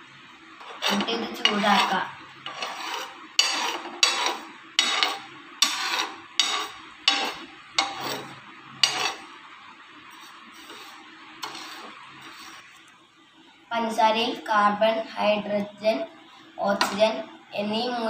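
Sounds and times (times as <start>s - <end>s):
spoon scraping a pan: 0.6s - 9.3s, 10.1s - 12.8s.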